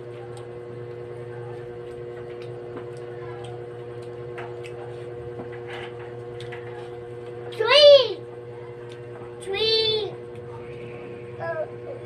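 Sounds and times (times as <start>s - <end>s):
steady hum with two tones: 5.0s - 12.0s.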